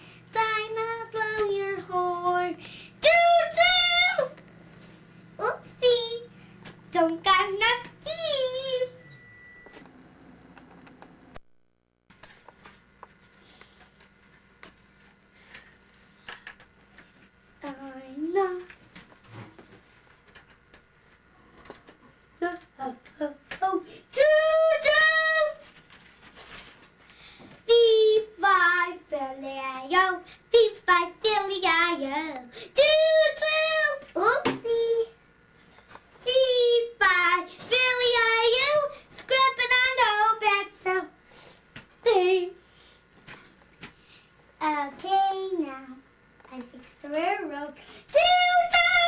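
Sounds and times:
small child singing: 0.3s - 4.4s, 5.4s - 6.3s, 6.9s - 9.0s, 17.6s - 18.7s, 22.4s - 25.6s, 27.6s - 35.2s, 36.2s - 41.2s, 42.0s - 42.6s, 44.6s - 49.0s.

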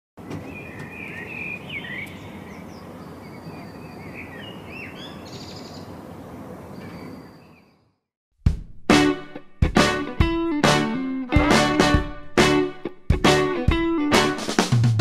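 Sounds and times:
songbirds chirping: 0.2s - 8.0s.

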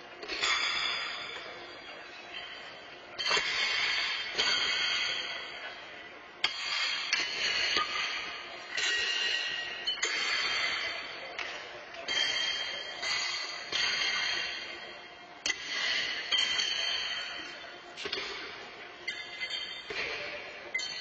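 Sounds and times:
horseshoes clanging on stakes: 12.1s - 18.4s, 19.1s - 21.0s.

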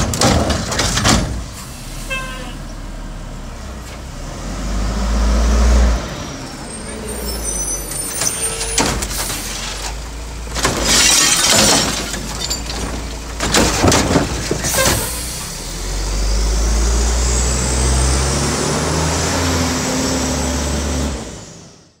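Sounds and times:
trash crashing into truck hopper: 0.0s - 1.8s, 7.9s - 16.0s
diesel engine revving: 1.3s - 22.0s.

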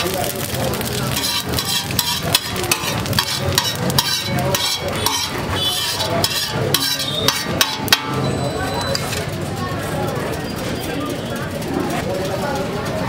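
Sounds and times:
metal spatula scraping griddle: 0.0s - 9.4s
griddle sizzle: 0.0s - 13.0s.

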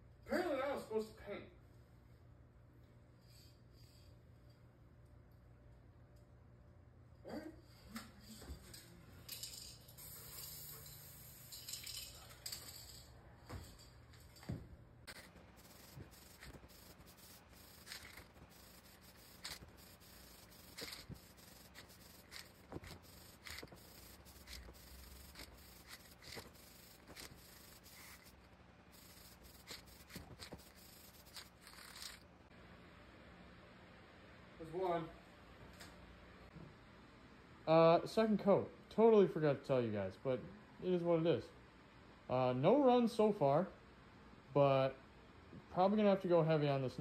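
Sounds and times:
spray paint can hissing: 10.0s - 12.1s, 15.1s - 32.2s.

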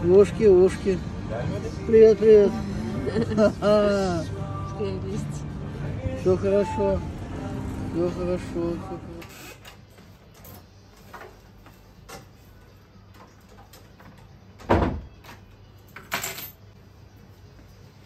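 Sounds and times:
door shutting with thump: 14.6s - 15.1s.

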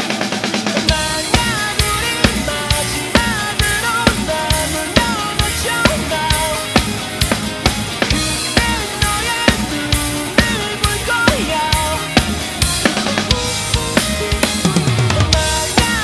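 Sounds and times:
acoustic drum kit: 0.0s - 16.0s
recorded band track: 0.0s - 16.0s
wavering melodic lead line: 0.6s - 16.0s.

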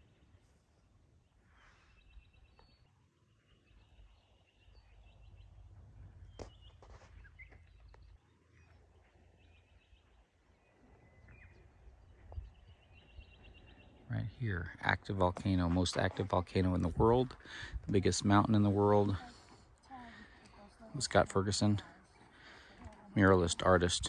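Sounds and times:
faint wind rumble on microphone: 11.2s - 13.7s.

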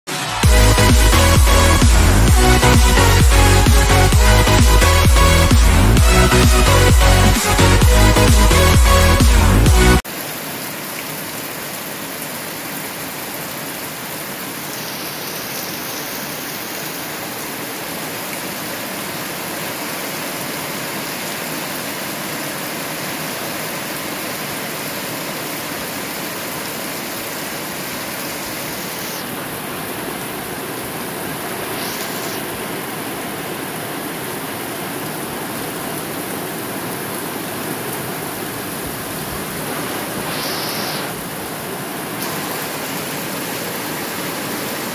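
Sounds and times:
runoff water flowing: 0.1s - 44.9s
heavy rain on plants: 9.8s - 44.9s.

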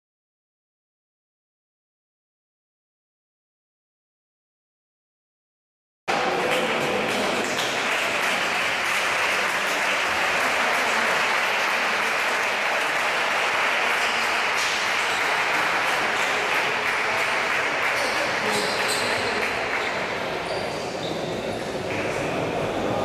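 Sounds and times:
applause: 6.1s - 20.4s.

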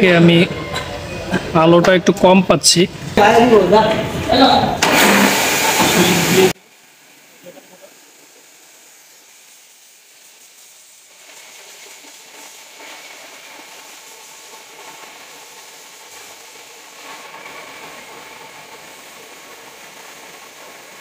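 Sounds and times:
pressure washer spraying: 4.8s - 6.6s, 7.4s - 21.0s.

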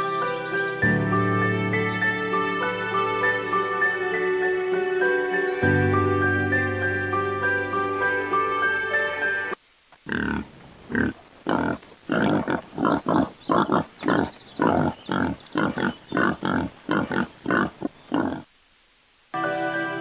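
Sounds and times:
wild boar grunting: 10.1s - 18.5s.

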